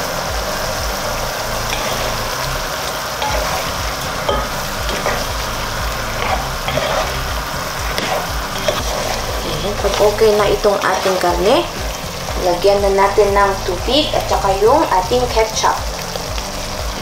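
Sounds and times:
low steady hum: 0.0s - 17.0s
spatula scraping a pot: 1.7s - 2.3s, 3.2s - 12.0s.

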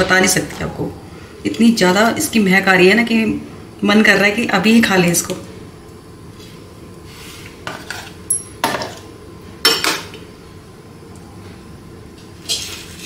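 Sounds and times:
utensils clinking against dishes: 7.7s - 9.0s.

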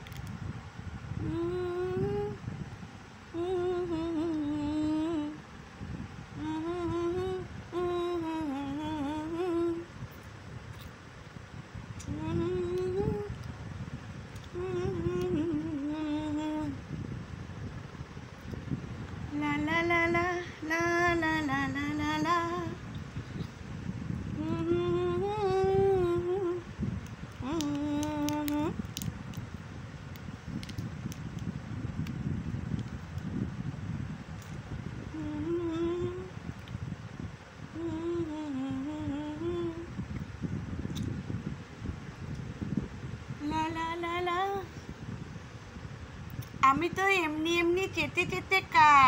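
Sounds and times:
woman humming: 1.2s - 2.4s, 3.2s - 5.4s, 6.4s - 9.9s, 12.0s - 13.4s, 14.5s - 16.8s, 24.3s - 26.7s, 27.4s - 28.8s, 35.1s - 36.4s, 37.7s - 40.0s.

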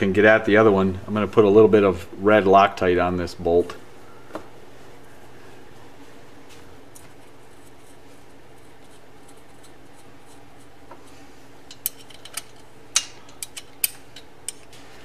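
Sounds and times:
steady low hum: 0.0s - 15.0s
metallic clicks of hand tools: 11.7s - 14.7s.

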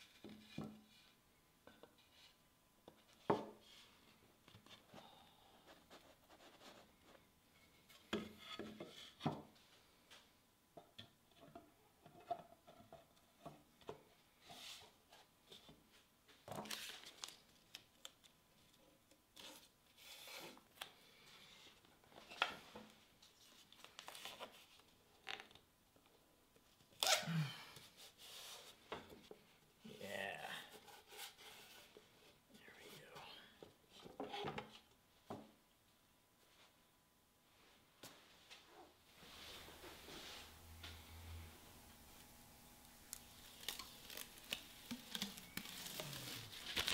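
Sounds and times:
tape ripping off roll: 43.0s - 46.9s.

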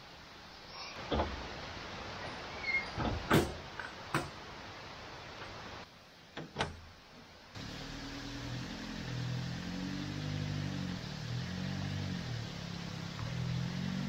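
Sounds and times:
steady hiss: 0.0s - 14.0s
objects knocking and clunking: 3.0s - 4.4s.

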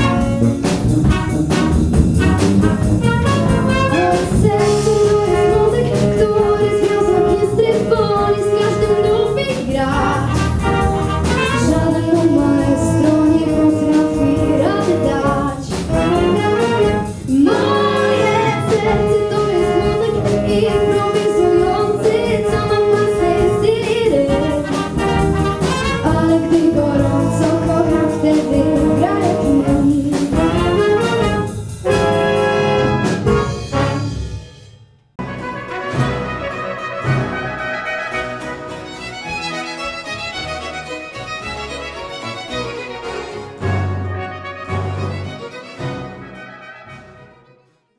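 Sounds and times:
big band playing jazz: 0.0s - 47.5s
person singing: 16.7s - 24.6s.

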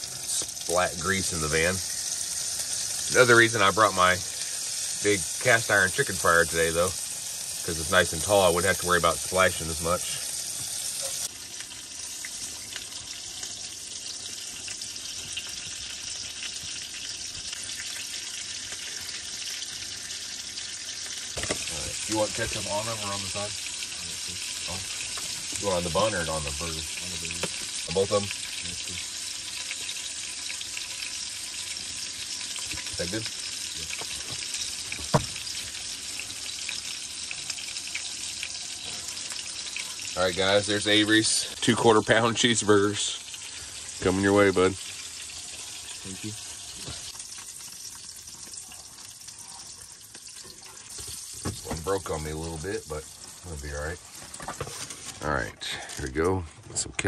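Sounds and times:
patties sizzling in grease: 0.0s - 56.5s.

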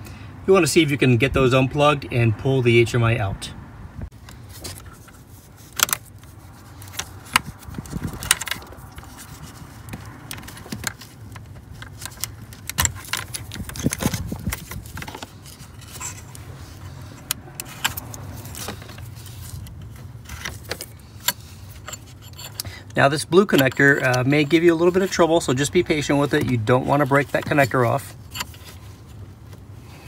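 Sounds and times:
plastic connectors clicking and rattling: 6.8s - 16.4s.

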